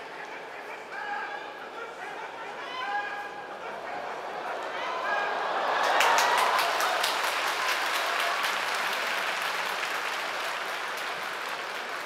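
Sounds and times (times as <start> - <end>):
crowd applauding: 4.6 - 12.0.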